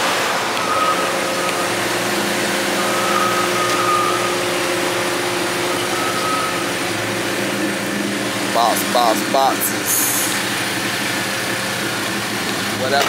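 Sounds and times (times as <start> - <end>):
engine idling hum: 0.5 - 13.0
faint high whine: 0.6 - 7.1.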